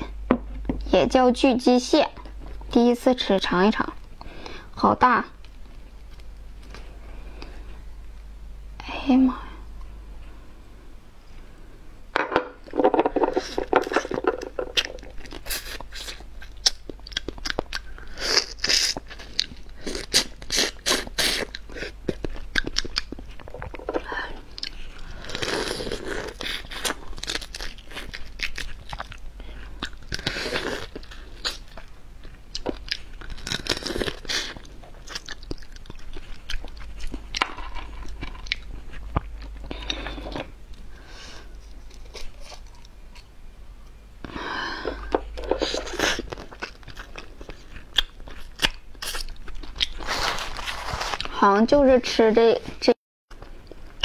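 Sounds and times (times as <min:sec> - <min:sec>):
wet chewing: 0:13.4 - 0:23.8, 0:24.5 - 0:40.5, 0:45.4 - 0:51.3
crunching crab shell: 0:25.0 - 0:29.2, 0:32.6 - 0:39.6.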